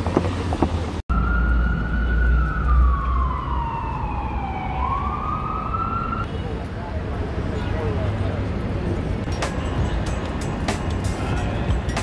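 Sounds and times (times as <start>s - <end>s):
city traffic rumble: 0.0s - 12.0s
emergency siren wailing: 1.1s - 6.3s.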